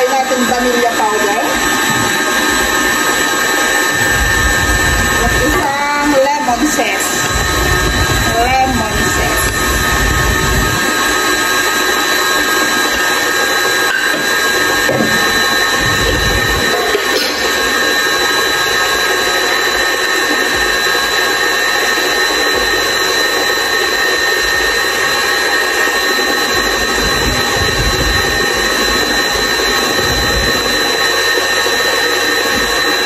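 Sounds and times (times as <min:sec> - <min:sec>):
high motor whine: 0:00.0 - 0:33.0
stand mixer running: 0:00.0 - 0:33.0.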